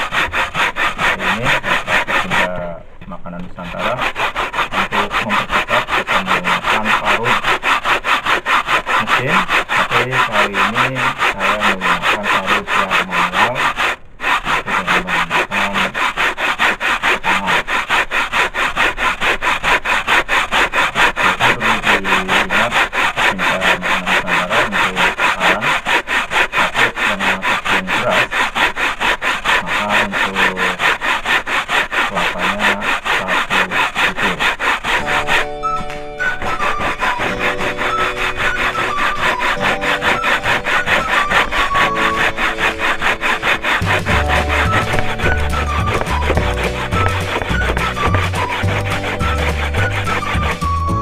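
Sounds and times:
coconut grated on metal grater: 0.0 - 2.8, 3.4 - 51.0
background music: 35.0 - 51.0.

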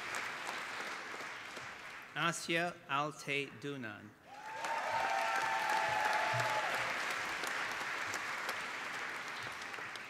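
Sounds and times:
audience applauding: 0.0 - 2.1, 4.3 - 10.0
held cheer: 4.3 - 7.2.

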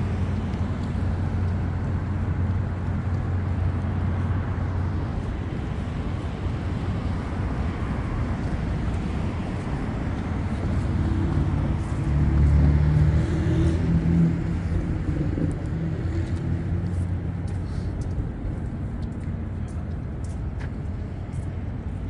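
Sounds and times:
street traffic rumbling: 0.0 - 22.0
vehicle engine passing: 10.4 - 18.0.

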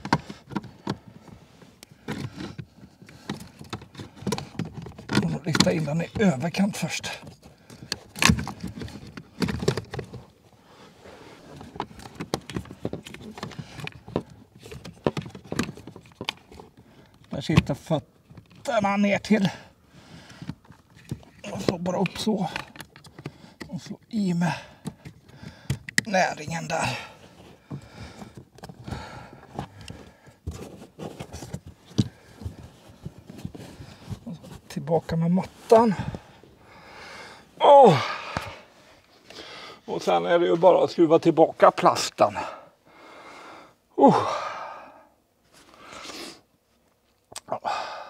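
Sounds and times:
hard plastic knocking and rattling: 0.0 - 1.4, 2.0 - 6.5, 7.2 - 10.2, 11.6 - 18.7, 20.3 - 23.7, 27.6 - 34.2
hands rustling car interior parts: 0.0 - 42.8.

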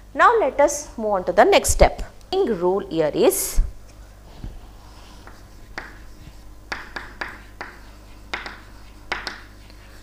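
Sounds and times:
low steady hum: 0.0 - 10.0
chalk tapping and scraping: 4.4 - 10.0.

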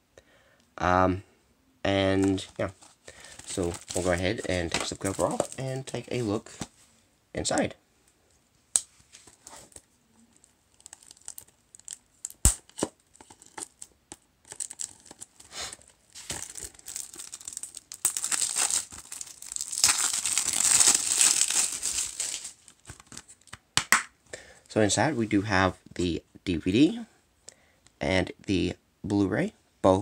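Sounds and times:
plastic wrap crinkling and tearing: 2.3 - 6.6, 9.3 - 23.6.

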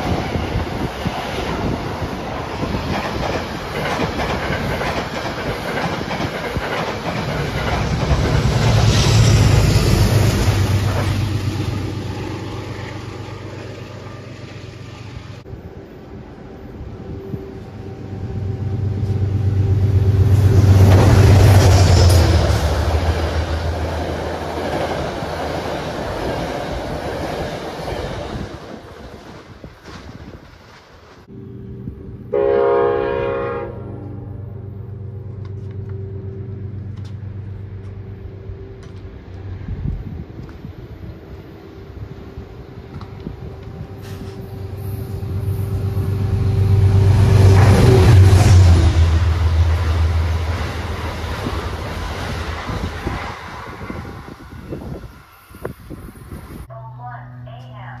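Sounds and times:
train wheels rushing on rail: 0.0 - 32.6, 35.0 - 56.7
clickety-clack of wheels: 2.6 - 8.9
locomotive low drone: 6.7 - 27.0, 31.2 - 57.8.

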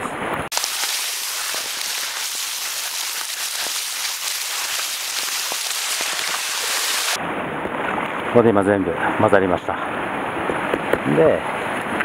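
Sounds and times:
groundbait stirred and scraped: 0.5 - 7.2.

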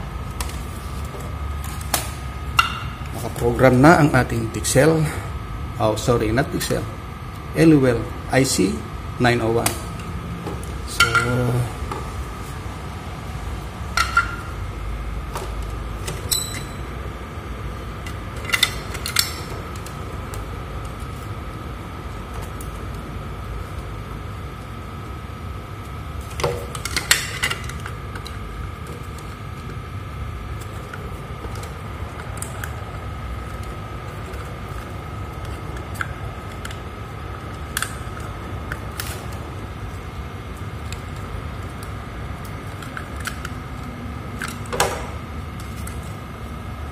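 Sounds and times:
faint high whine: 0.0 - 46.9
low hum: 0.0 - 46.9.

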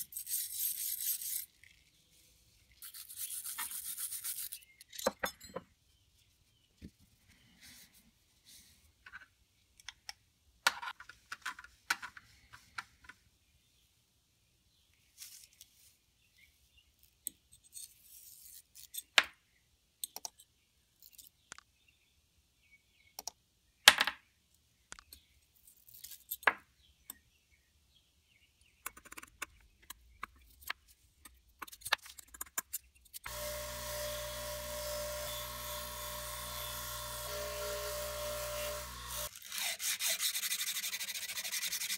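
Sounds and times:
metal parts clinking: 25.6 - 26.5
bench grinder wire wheel: 33.2 - 41.9.

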